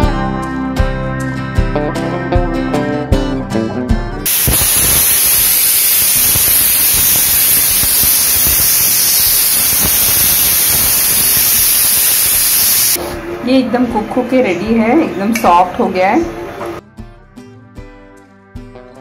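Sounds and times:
pressure cooker steam hissing: 4.3 - 13.0.

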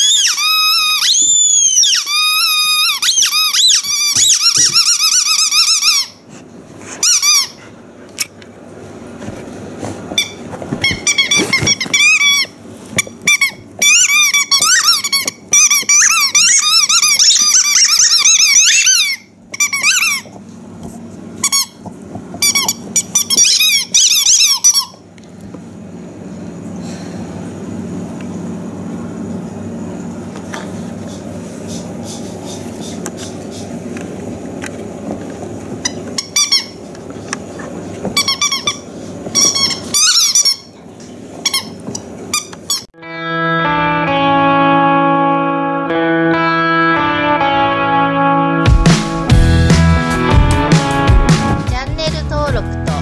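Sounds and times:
squeaky toy squeaking: 0.0 - 6.2, 7.0 - 7.6, 10.2 - 20.3, 22.4 - 25.0, 38.2 - 40.7.

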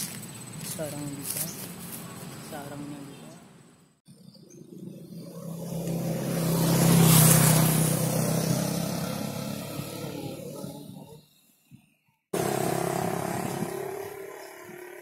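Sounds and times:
engine passing by: 4.6 - 11.2, 12.4 - 15.0.

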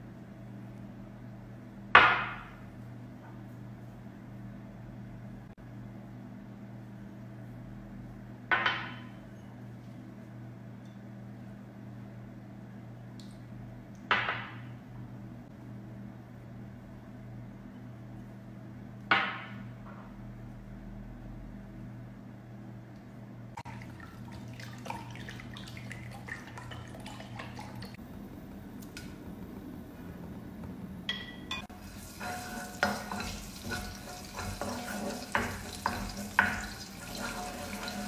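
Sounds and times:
steady low hum: 14.7 - 38.0
oil crackling in a wok: 31.7 - 38.0.

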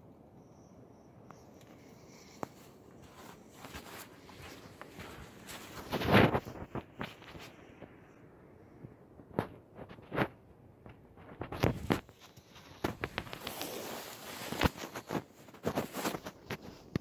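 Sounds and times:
footsteps crunching through snow: 2.4 - 7.6, 11.3 - 16.9.

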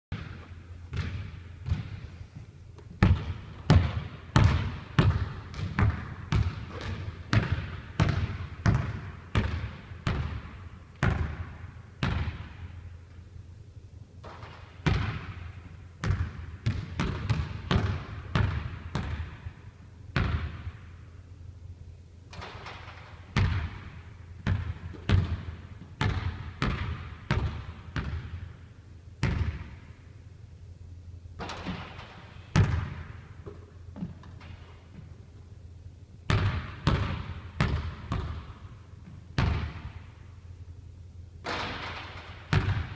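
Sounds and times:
basketball bouncing on wooden floor: 0.1 - 2.0, 3.0 - 12.6, 14.2 - 19.5, 20.2 - 20.8, 22.3 - 28.5, 29.2 - 29.8, 31.4 - 35.2, 36.3 - 40.0, 41.4 - 42.9
steady low hum: 0.1 - 42.9.

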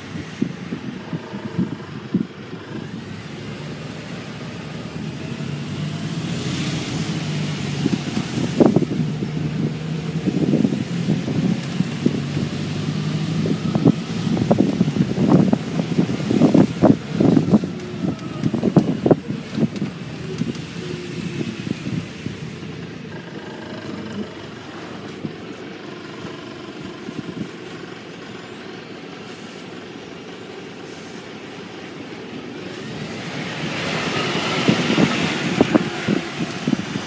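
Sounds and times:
wind gusts on microphone: 0.0 - 23.0, 32.6 - 37.0
bus running: 0.0 - 37.0.

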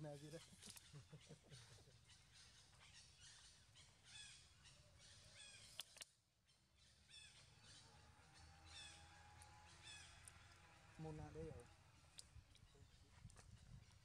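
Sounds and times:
bird calling: 0.0 - 6.0, 6.8 - 11.1.

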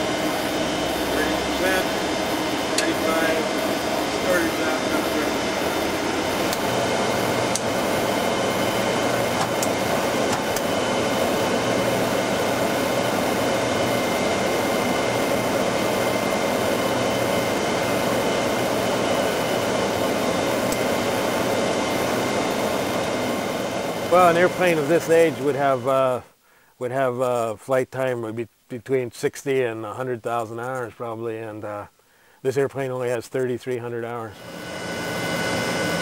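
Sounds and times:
jet engine idling: 0.0 - 26.1, 34.3 - 36.0.

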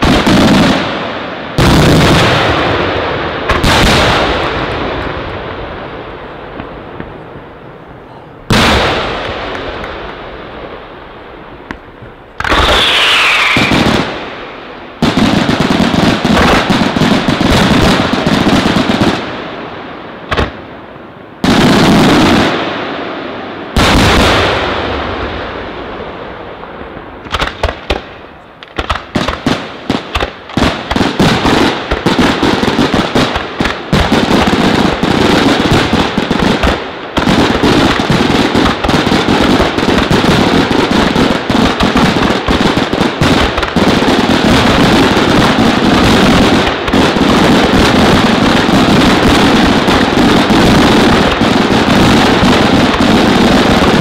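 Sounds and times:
rapid firework barrage: 0.0 - 54.0
firework shells bursting: 11.6 - 18.2.

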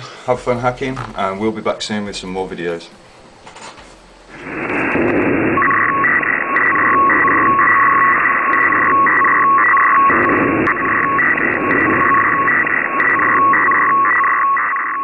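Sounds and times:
telephone line hiss: 4.1 - 15.0
electronic data tones: 4.3 - 15.0.

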